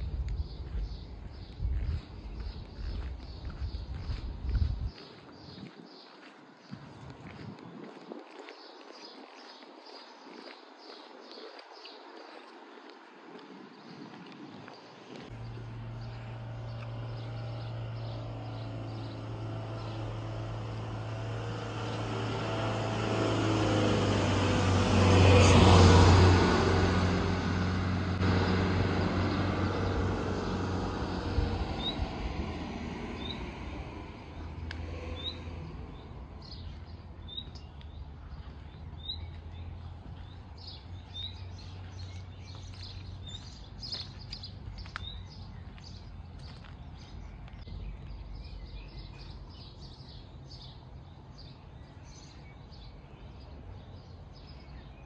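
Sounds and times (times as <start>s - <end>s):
small birds chirping: 0.0s - 23.0s, 27.6s - 55.0s
vehicle driving past: 15.2s - 44.0s.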